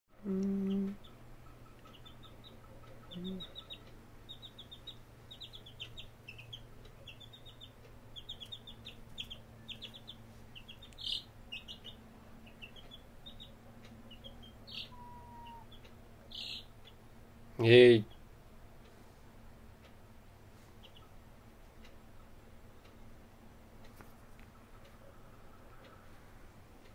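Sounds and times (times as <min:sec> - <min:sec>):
chick peeping: 0:00.2 - 0:17.1, 0:20.7 - 0:21.2, 0:23.8 - 0:26.9
loud chick call: 0:14.6 - 0:16.6.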